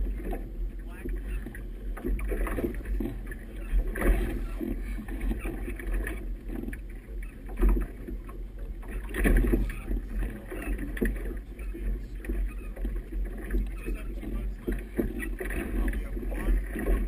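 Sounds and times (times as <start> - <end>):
water splashing against boat hull: 0.0 - 17.0.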